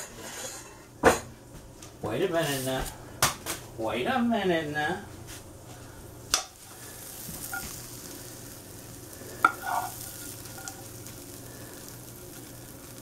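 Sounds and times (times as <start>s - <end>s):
faint sizzle: 2.0s - 13.0s
spoon knocking on a skillet: 7.2s - 7.8s, 9.4s - 11.3s.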